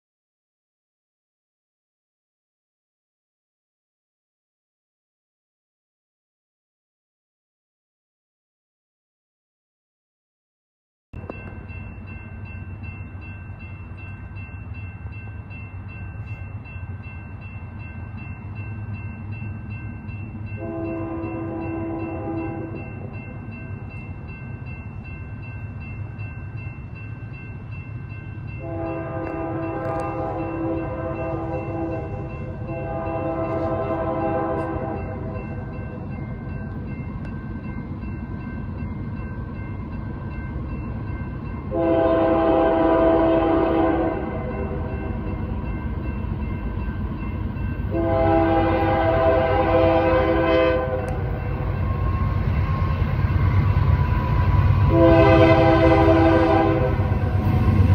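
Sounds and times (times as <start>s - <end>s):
locomotive air horn blasts: 20.6s - 22.8s, 28.6s - 35.4s, 41.7s - 44.9s, 47.9s - 51.3s, 54.8s - 57.2s.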